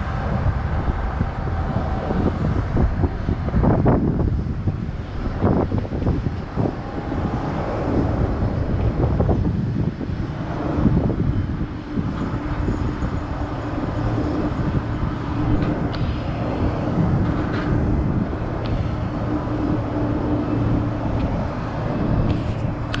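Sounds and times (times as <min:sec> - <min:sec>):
aircraft and traffic rumble: 0:00.0 - 0:23.0
steady hum: 0:00.0 - 0:23.0.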